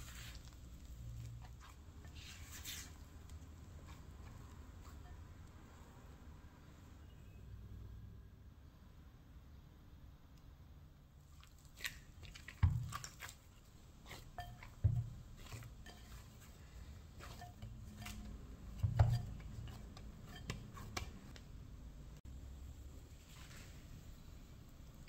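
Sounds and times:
dough kneaded in bowl: 0.0 - 7.1, 11.1 - 25.0
dull thumps of dough and bowl: 11.8 - 21.6.

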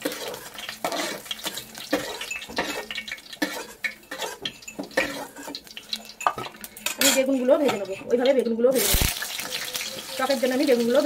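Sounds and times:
spatula scraping metal pans: 0.0 - 8.2
oil sizzling: 0.0 - 11.0.

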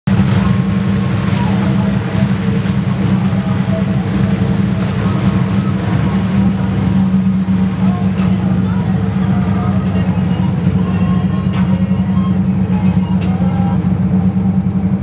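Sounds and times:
motorboat engine droning: 0.1 - 15.0.

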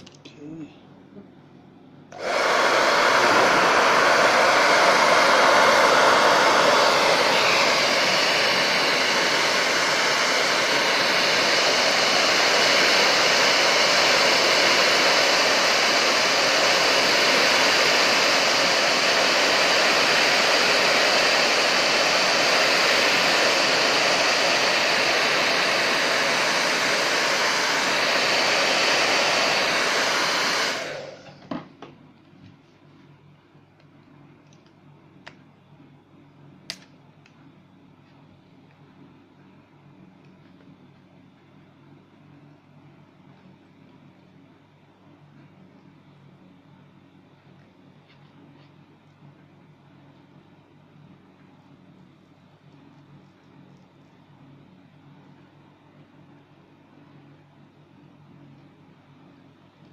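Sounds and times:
faint fan whine: 0.0 - 59.9
hot-air blower rushing hiss: 2.1 - 31.8.

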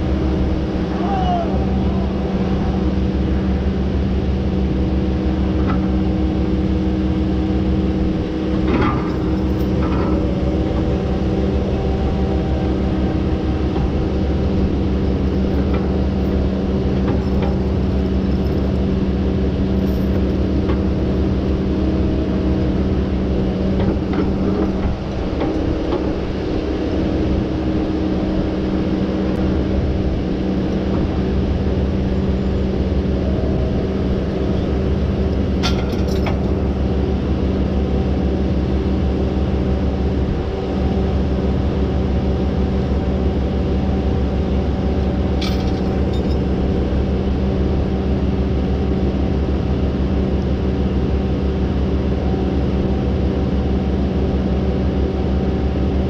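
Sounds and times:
diesel engine idling: 0.0 - 55.9.

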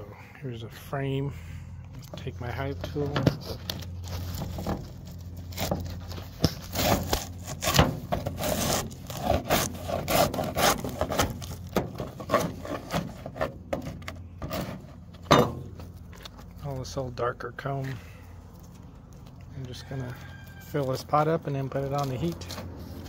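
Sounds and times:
hive tool scraping wax: 2.1 - 15.2, 19.0 - 23.0.

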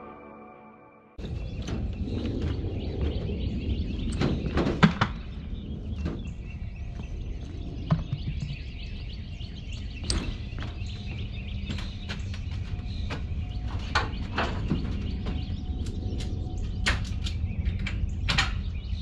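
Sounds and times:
birds chirping: 0.0 - 19.0
footsteps on wooden ramp: 1.2 - 15.6.

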